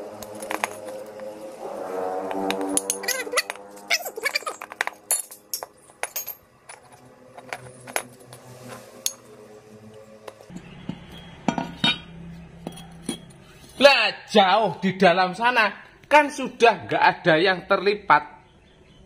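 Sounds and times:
metal parts clinking on concrete: 0:00.2 - 0:01.1, 0:02.7 - 0:09.3, 0:10.3 - 0:13.9.

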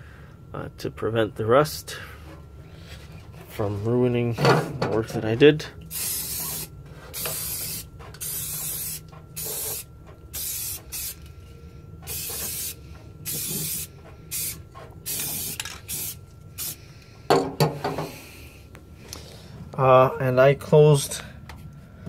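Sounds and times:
aerosol spray can hissing: 0:05.9 - 0:11.2, 0:12.1 - 0:16.8.

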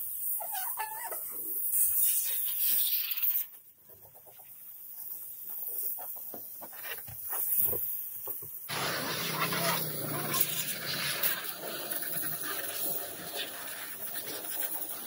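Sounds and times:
air blow gun hissing: 0:08.7 - 0:15.0.

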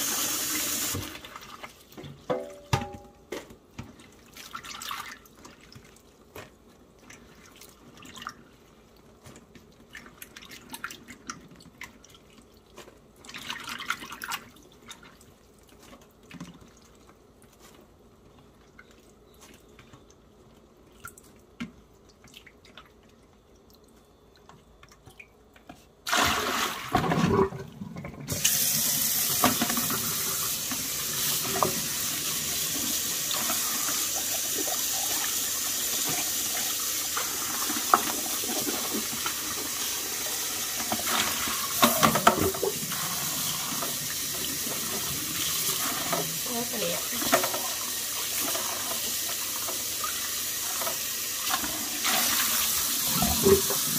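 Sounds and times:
water running into a sink: 0:00.0 - 0:01.8, 0:26.1 - 0:53.9.

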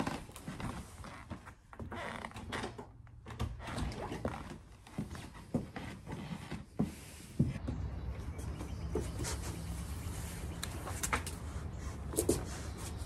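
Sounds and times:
footsteps: 0:04.2 - 0:13.0.

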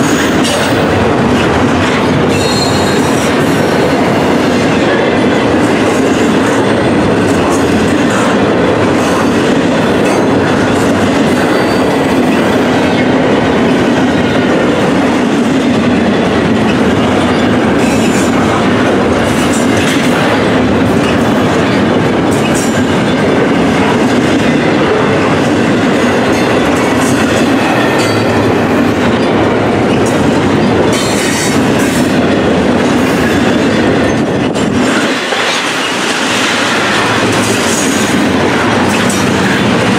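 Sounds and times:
sharp rail clicks: 0:00.0 - 0:39.9
steel wheels rumbling on rail: 0:00.0 - 0:39.9
faint high wheel squeal: 0:02.4 - 0:03.0.

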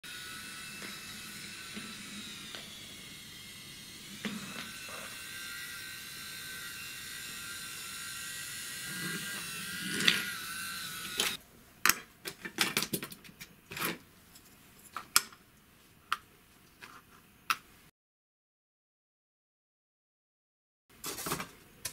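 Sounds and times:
toy train motor whining: 0:00.0 - 0:11.4.

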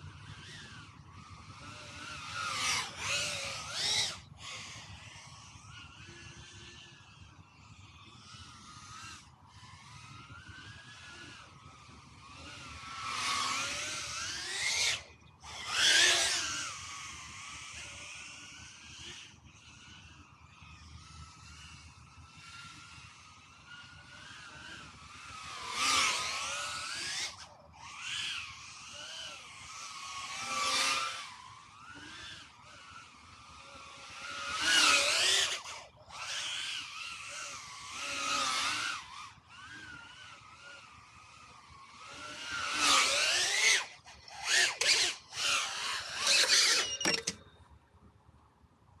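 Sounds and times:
drone motors whining: 0:00.0 - 0:48.9.

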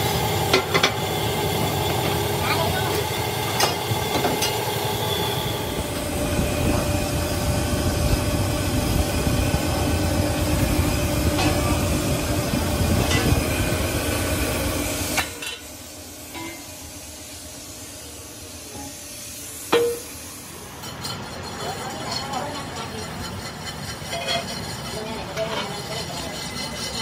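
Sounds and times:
metal rim rolling rumble: 0:05.3 - 0:15.2.

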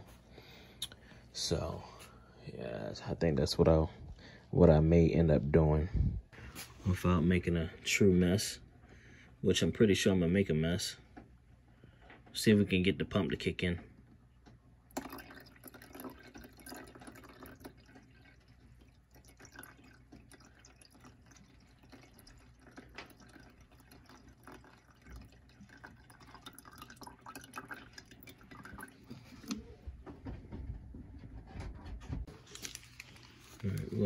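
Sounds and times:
small irregular drips and ticks: 0:14.1 - 0:29.6
water trickling into reservoir: 0:14.9 - 0:29.8.

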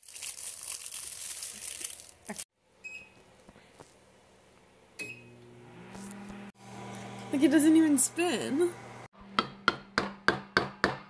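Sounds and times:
plastic wrapper crinkling: 0:00.0 - 0:02.5
microwave keypad beeps: 0:02.8 - 0:03.2
microwave oven humming: 0:05.0 - 0:09.1.

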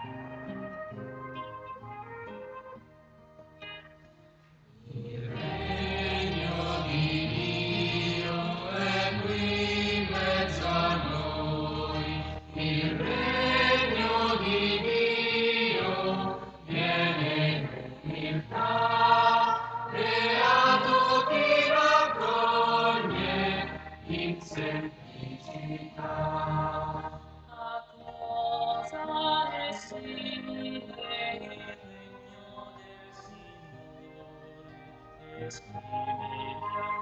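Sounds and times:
group singing a hymn: 0:04.9 - 0:34.0.

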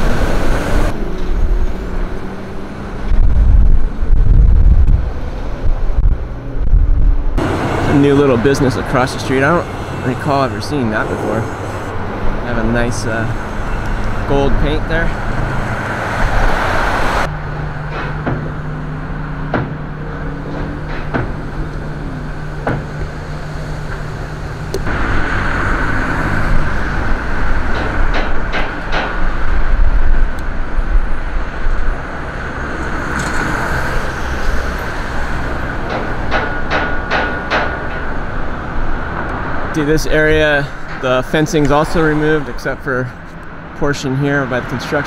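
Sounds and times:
cars passing: 0:00.0 - 0:45.0
low traffic hum: 0:00.0 - 0:45.0
sharp knocks: 0:17.9 - 0:18.6, 0:19.5 - 0:19.8, 0:20.5 - 0:21.4, 0:22.6 - 0:23.1, 0:27.6 - 0:29.4, 0:35.8 - 0:38.1.

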